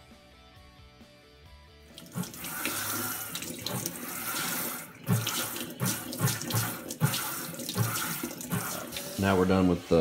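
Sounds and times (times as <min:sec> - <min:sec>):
water pouring into a bucket: 0:02.0 - 0:09.4.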